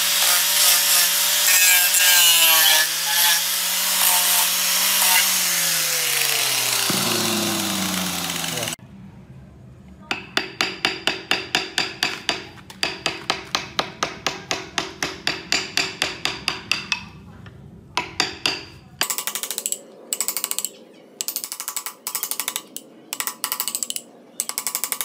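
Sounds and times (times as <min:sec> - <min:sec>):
mallet striking chisel into wood: 0:10.1 - 0:17.2, 0:18.0 - 0:19.4.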